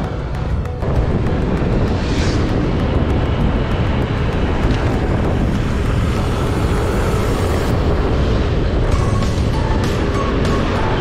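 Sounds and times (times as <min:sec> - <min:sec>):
wind and road noise: 0:00.0 - 0:11.0
scooter engine running: 0:02.5 - 0:11.0.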